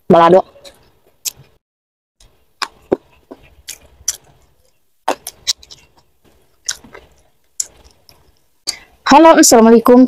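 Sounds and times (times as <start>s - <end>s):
crunches and mouth clicks: 0.5s - 1.6s, 2.2s - 8.9s
chewing: 2.6s - 8.9s.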